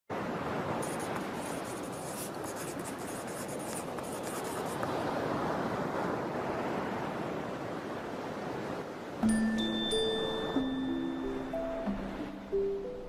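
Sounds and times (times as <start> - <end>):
ocean surf: 0.1 - 13.0
pen scratching on paper: 0.8 - 5.0.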